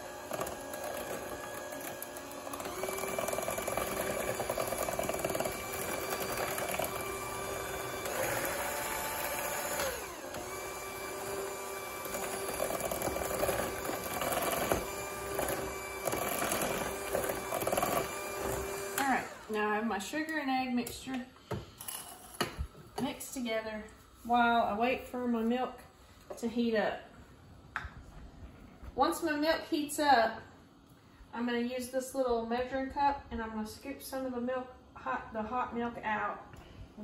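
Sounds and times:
electric hand mixer whining: 0.0 - 19.6.

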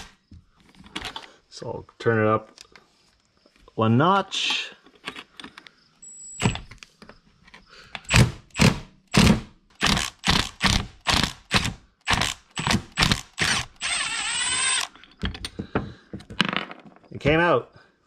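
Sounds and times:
cordless impact driver hammering: 8.1 - 14.9.

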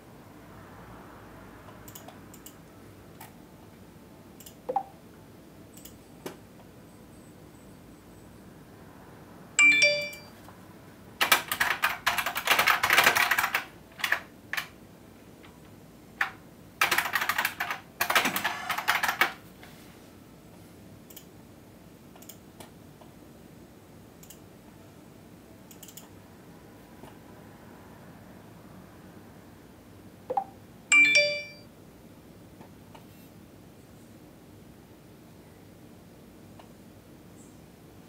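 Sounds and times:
short electronic chime: 9.6 - 10.3.

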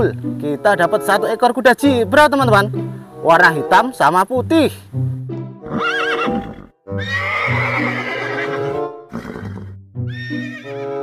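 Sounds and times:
background music: 0.0 - 11.0
zebras neighing: 5.6 - 11.0.

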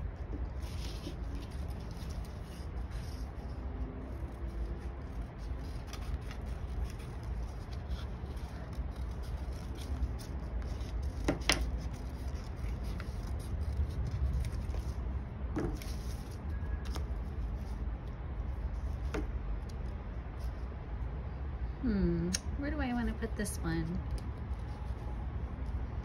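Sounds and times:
steady low hum: 0.0 - 26.0
paper being handled: 0.1 - 20.6.

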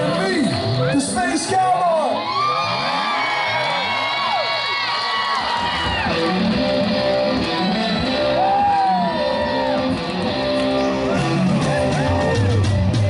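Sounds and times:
keyboards: 0.0 - 3.8, 5.2 - 13.0
bass: 0.0 - 13.0
electric guitar bending notes: 5.5 - 13.0.

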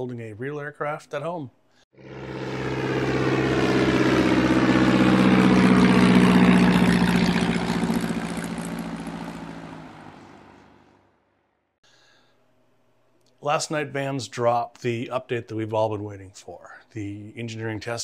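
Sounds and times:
propeller aircraft passing by: 1.9 - 11.5.

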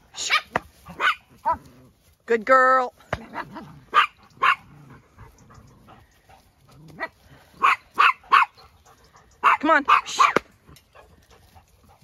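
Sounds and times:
dog barking: 0.2 - 1.6, 3.9 - 4.7, 7.0 - 8.7, 9.4 - 10.4.

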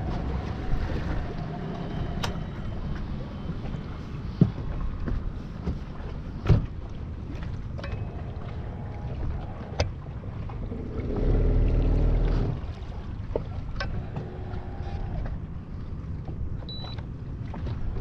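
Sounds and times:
water noise: 0.0 - 18.0
wind: 0.0 - 18.0
knocks on boat deck: 6.4 - 6.7
trolling motor humming: 7.7 - 17.3.

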